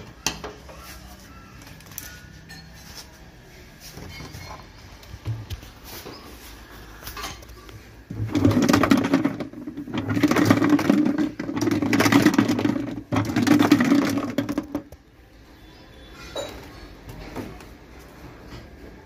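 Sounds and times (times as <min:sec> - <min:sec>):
washing machine motor humming: 0:08.0 - 0:15.0.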